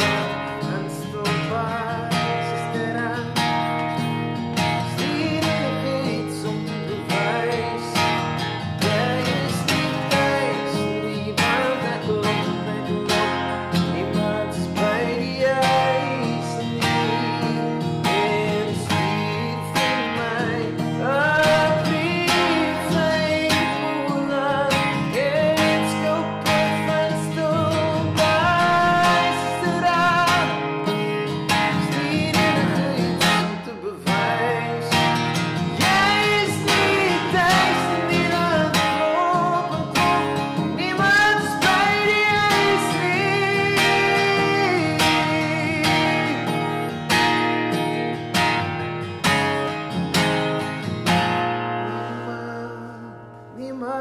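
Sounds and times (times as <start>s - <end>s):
man singing: 0.0s - 47.5s, 51.8s - 54.0s
strummed acoustic guitar: 0.0s - 54.0s.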